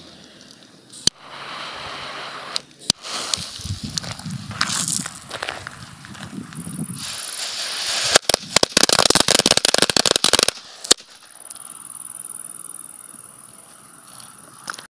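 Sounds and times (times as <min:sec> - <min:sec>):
firecrackers cracking: 0:00.3 - 0:11.5.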